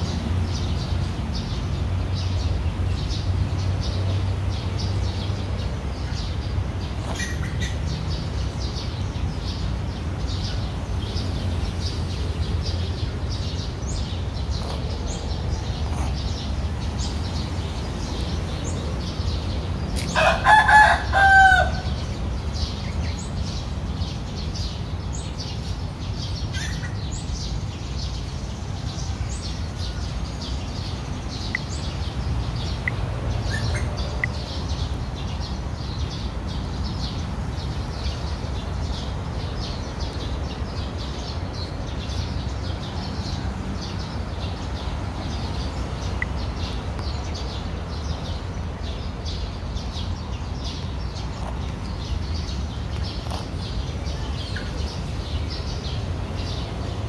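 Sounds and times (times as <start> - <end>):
small birds chirping: 0.0 - 57.0
rooster crowing: 20.1 - 22.0.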